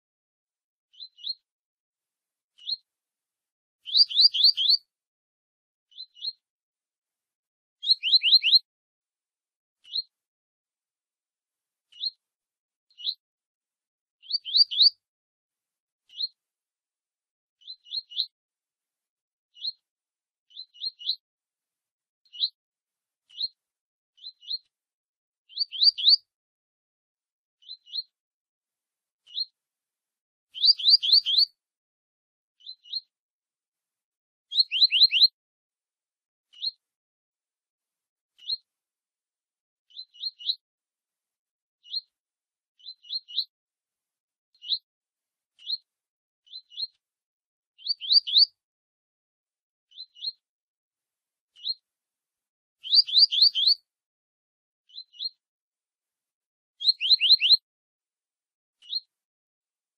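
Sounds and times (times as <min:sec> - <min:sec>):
bird whistling upward notes: 0:03.9 - 0:04.8, 0:07.8 - 0:08.6, 0:30.6 - 0:31.5, 0:34.5 - 0:35.3, 0:47.9 - 0:48.5, 0:52.8 - 0:53.8, 0:56.8 - 0:57.6.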